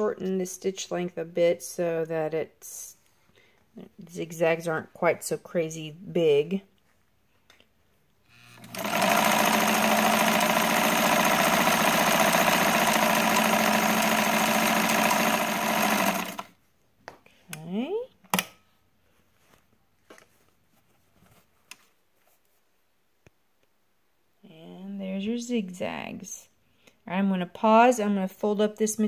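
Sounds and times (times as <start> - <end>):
sewing machine stitching: 8.4 - 16.6.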